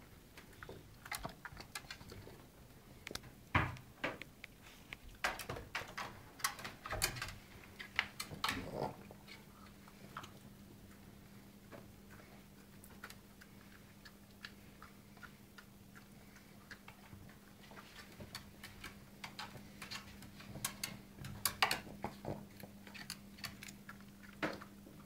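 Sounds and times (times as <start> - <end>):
dog claws clicking on wooden stairs: 5.2 - 8.9, 18.0 - 23.7.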